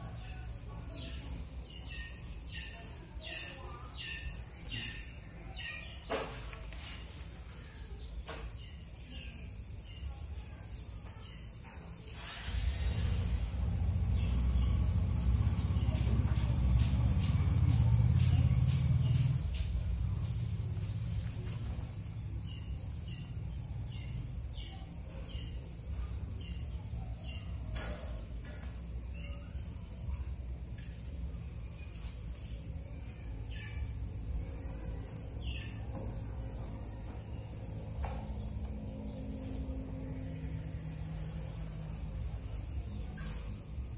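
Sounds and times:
high-pitched insect trill: 0.0s - 43.9s
low hum: 12.2s - 24.0s.

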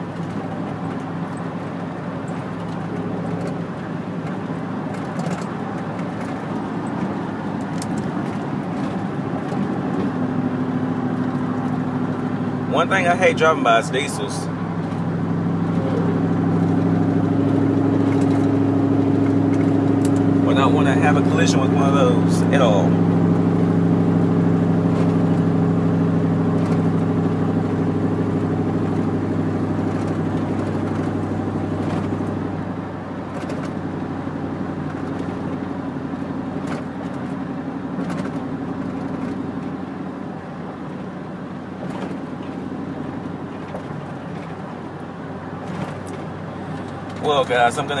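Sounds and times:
road noise: 0.0s - 48.0s
truck engine droning: 0.0s - 48.0s.

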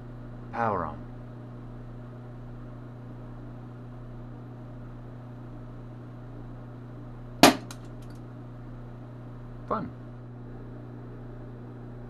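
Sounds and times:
low electrical hum: 0.0s - 12.0s
capacitor bursting with loud bang: 7.4s - 7.9s.

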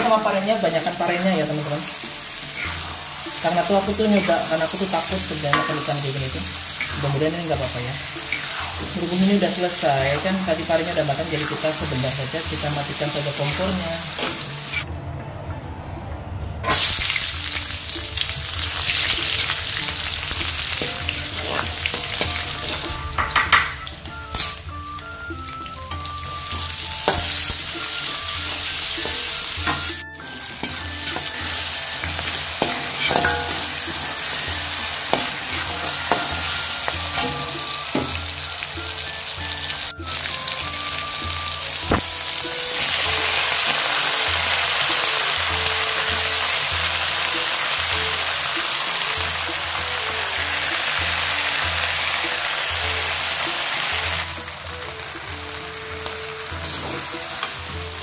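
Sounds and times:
oil sizzling in a wok: 0.0s - 14.9s, 16.6s - 58.0s
spatula scraping a pan: 2.0s - 5.9s, 7.9s - 10.4s, 25.9s - 38.4s.

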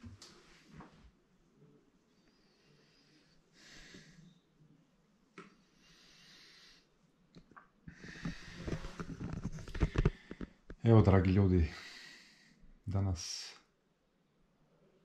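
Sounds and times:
person breathing: 2.1s - 4.4s, 5.6s - 7.0s, 7.9s - 10.6s, 11.6s - 12.8s.

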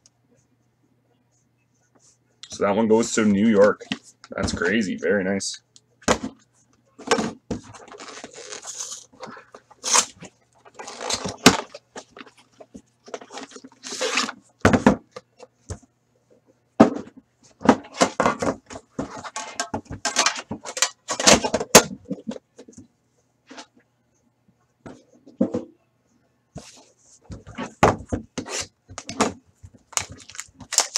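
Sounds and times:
cardboard rustling and crumpling: 7.7s - 9.1s, 9.8s - 14.4s, 28.4s - 30.9s.

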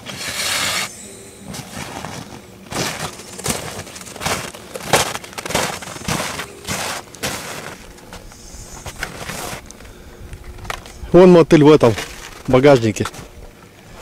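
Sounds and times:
footsteps crunching in snow: 0.0s - 9.6s.

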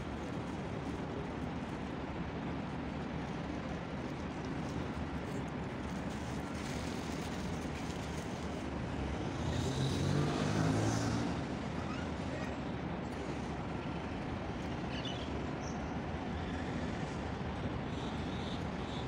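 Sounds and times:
road traffic: 0.0s - 19.0s
vehicle engine passing: 9.2s - 12.0s.

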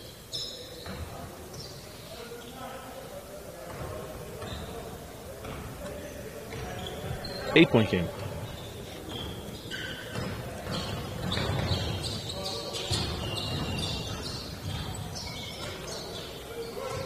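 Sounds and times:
sneakers squeaking on hardwood: 0.0s - 2.9s, 3.6s - 17.0s
basketball bouncing: 10.1s - 12.2s, 12.9s - 15.9s.

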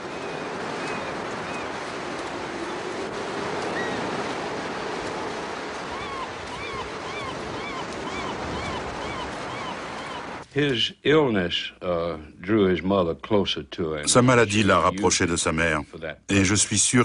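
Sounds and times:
sea surf washing on beach: 0.0s - 10.4s
wind: 0.0s - 17.0s.

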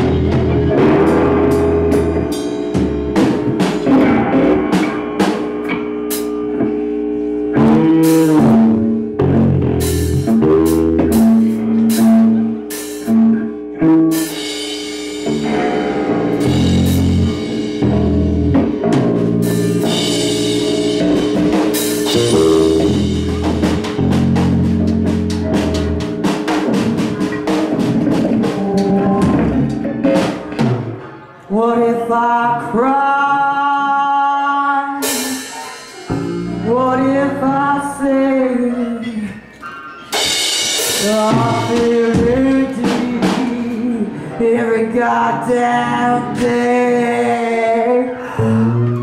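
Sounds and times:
drum kit and cymbal hits: 0.0s - 31.2s, 35.0s - 36.8s, 40.1s - 43.9s
electric guitar: 0.0s - 31.5s, 32.1s - 49.0s
bass guitar: 0.0s - 49.0s.

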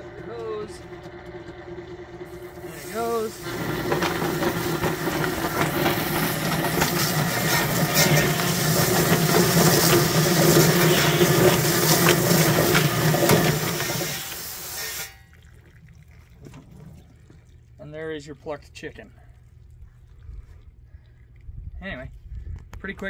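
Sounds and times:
electric motor hum: 0.0s - 14.7s
water spraying from hose: 2.6s - 15.3s.

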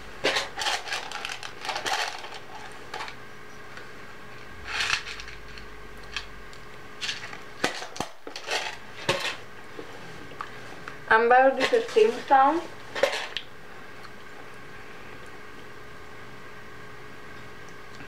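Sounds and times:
mints rattling in tin: 0.3s - 3.1s.

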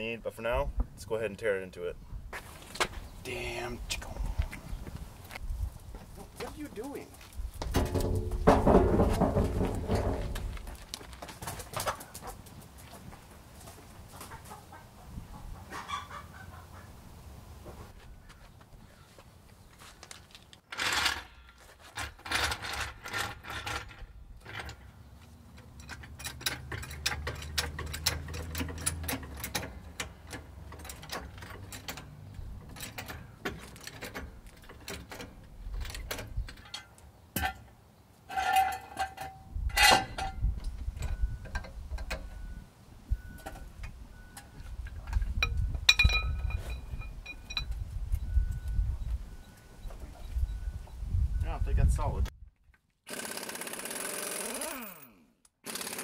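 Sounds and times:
floor jack clicking and knocking: 7.6s - 12.0s
metal clanks: 7.7s - 10.8s, 25.5s - 37.7s, 38.3s - 42.5s.

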